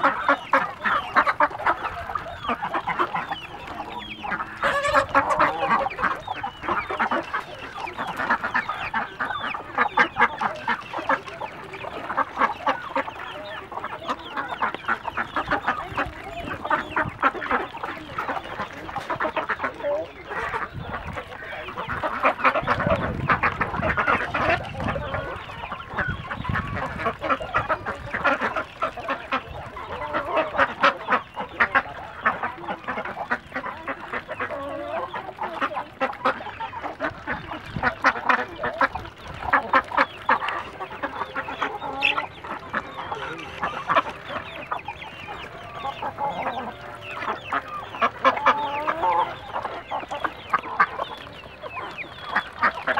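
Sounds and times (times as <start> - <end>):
chickens clucking: 0.0 - 52.9
ducks quacking: 0.0 - 52.9.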